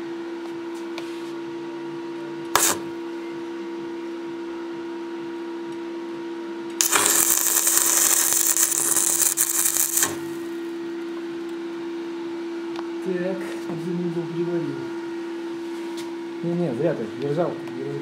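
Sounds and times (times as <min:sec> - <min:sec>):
welding arc crackling hiss: 0:02.6 - 0:02.9, 0:06.8 - 0:10.5
electrical hum: 0:06.8 - 0:11.3.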